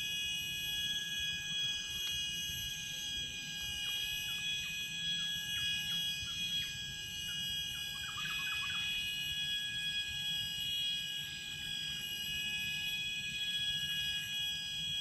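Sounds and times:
forest insects droning: 0.0 - 15.0.

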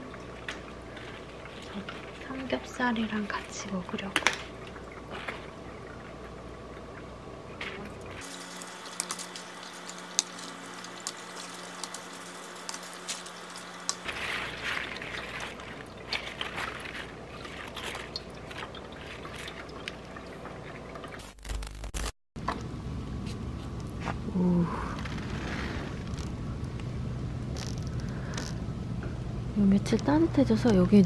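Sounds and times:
faint steady hum: 0.0 - 21.6, 22.4 - 31.0
lettuce leaves snapping: 8.6 - 20.0.

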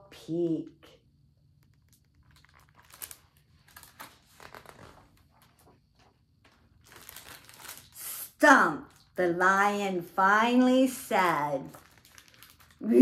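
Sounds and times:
book pages turning: 1.6 - 8.0.

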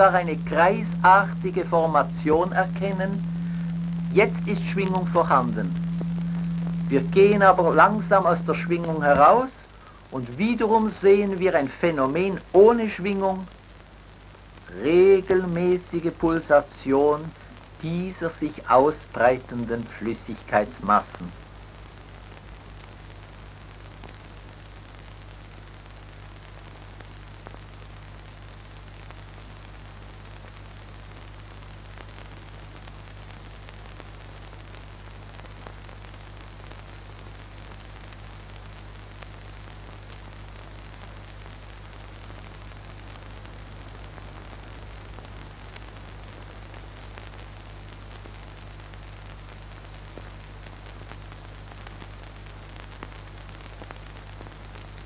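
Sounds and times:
low even hum: 0.0 - 12.8
film soundtrack hiss: 0.0 - 55.0.

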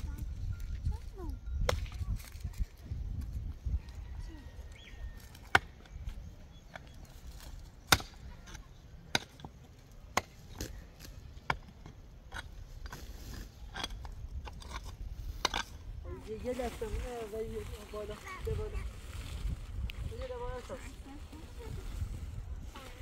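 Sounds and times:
pickaxe striking stony soil: 7.8 - 15.8.

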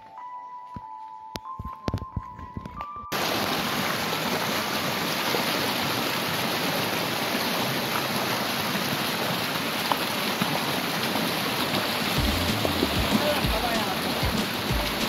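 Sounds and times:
stream running over stones: 3.2 - 15.0.

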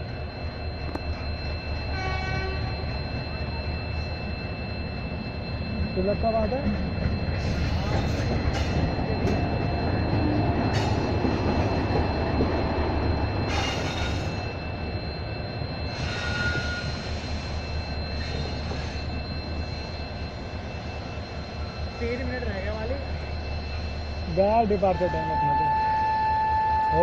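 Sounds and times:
train wheels rumbling on track: 0.0 - 27.0
faint wheel squeal: 15.8 - 22.2.

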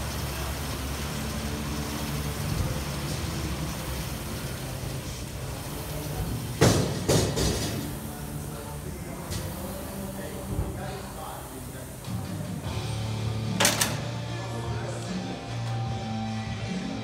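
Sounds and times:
rowing machine flywheel whirring: 0.0 - 15.8
loud knocks: 6.6 - 7.8.

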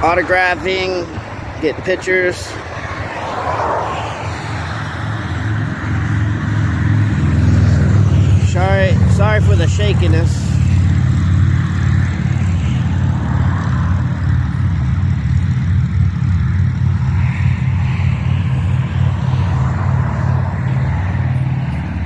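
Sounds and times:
engine idling: 5.2 - 22.0.

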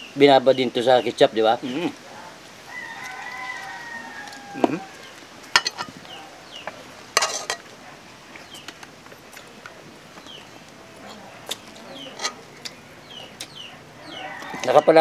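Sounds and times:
small birds chirping: 0.0 - 15.0
rooster crowing: 2.6 - 5.2, 14.0 - 15.0.

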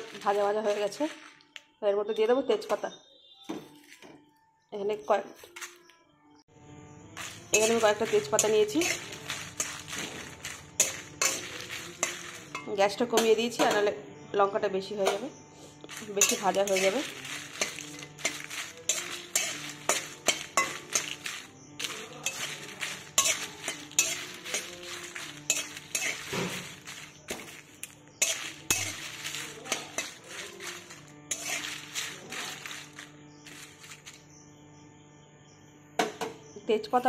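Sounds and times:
metal spatula scraping a pan: 7.2 - 13.9, 15.0 - 34.2.

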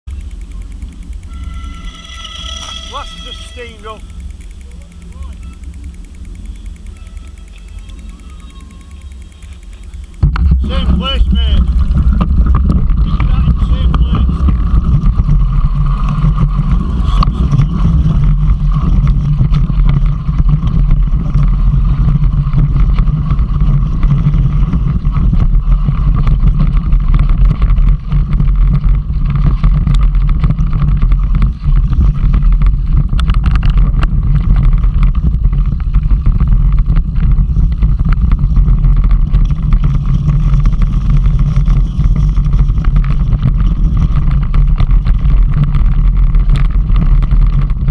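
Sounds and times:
wind and tyre rumble: 0.0 - 47.9
stones and bike rattling: 0.1 - 47.9.

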